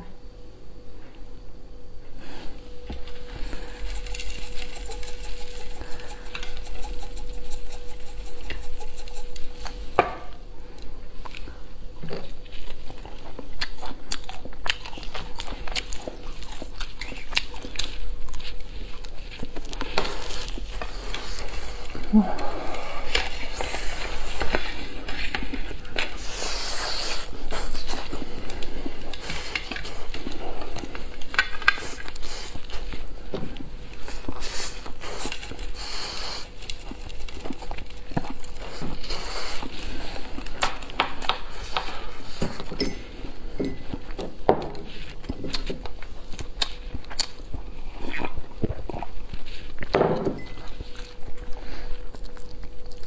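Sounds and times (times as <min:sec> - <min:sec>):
crunching fried food: 0:11.2 - 0:42.4.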